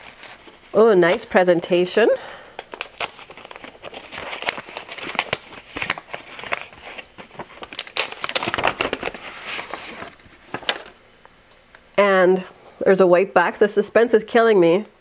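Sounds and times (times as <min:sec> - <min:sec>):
wrapping paper crinkling: 0:00.0 - 0:01.5, 0:02.2 - 0:11.0.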